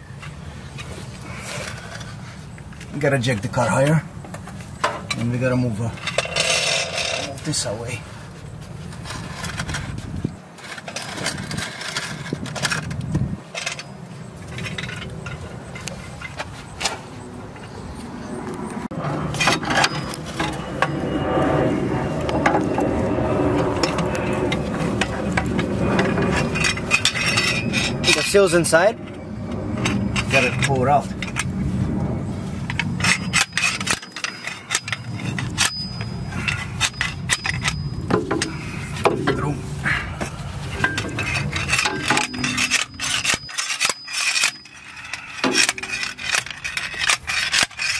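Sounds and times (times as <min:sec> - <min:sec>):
steady low rumble: 0:00.0 - 0:47.9
metal tools scraping and clicking: 0:04.8 - 0:07.6, 0:10.6 - 0:17.0, 0:19.3 - 0:21.0, 0:23.8 - 0:31.6, 0:32.6 - 0:39.5, 0:40.6 - 0:47.9
metal clanks and knocks: 0:32.7 - 0:39.5, 0:40.2 - 0:47.9.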